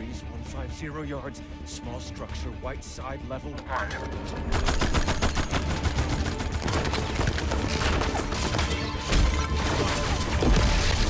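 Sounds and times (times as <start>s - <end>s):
film score music: 0.0s - 11.0s
rapid gunfire: 4.5s - 8.9s.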